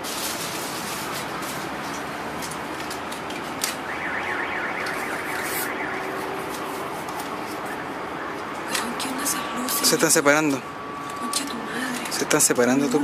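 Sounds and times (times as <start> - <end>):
car alarm warbling: 3.8 - 6.6, 7.5 - 12.3.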